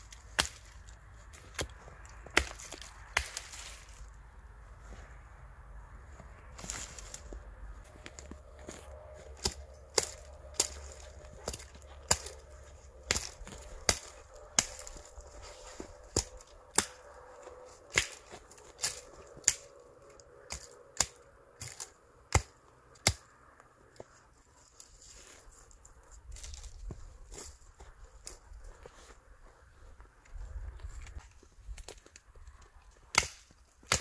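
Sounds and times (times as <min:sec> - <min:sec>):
hatchet chopping wood: 0:09.4 - 0:12.4, 0:13.0 - 0:15.2, 0:33.1 - 0:34.0.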